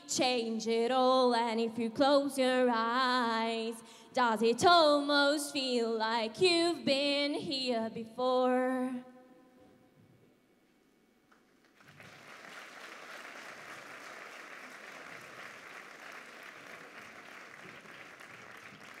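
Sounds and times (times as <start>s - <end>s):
audience applause: 11.6s - 19.0s.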